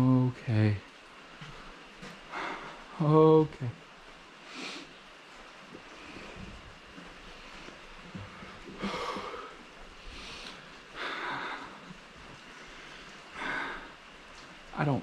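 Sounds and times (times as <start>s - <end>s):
faint background hiss: 0.0s - 15.0s
man breathing hard: 2.3s - 2.9s, 8.1s - 14.1s.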